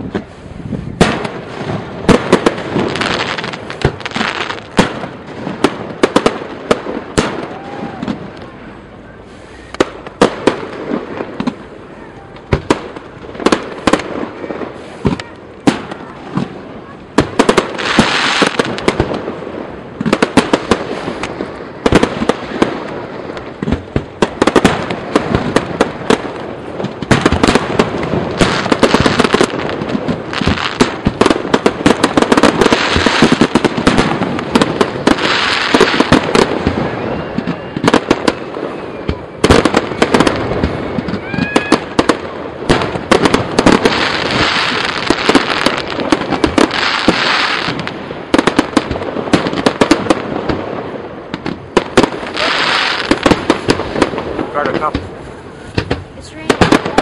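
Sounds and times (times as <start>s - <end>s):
fireworks bangs and crackling: 0.0s - 57.0s
firework whistles: 7.0s - 16.1s, 27.1s - 48.7s, 51.9s - 55.8s.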